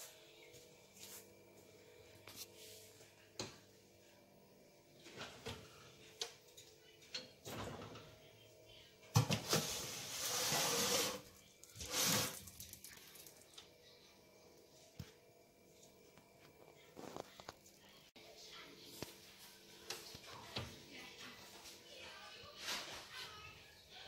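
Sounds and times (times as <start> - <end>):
tray scraping on oven rack: 9.4 - 11.2.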